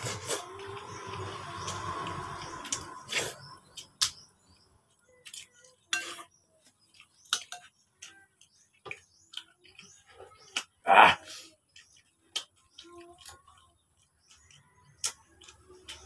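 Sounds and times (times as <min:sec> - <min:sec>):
mouth smacks and chewing: 0:11.5 - 0:16.0.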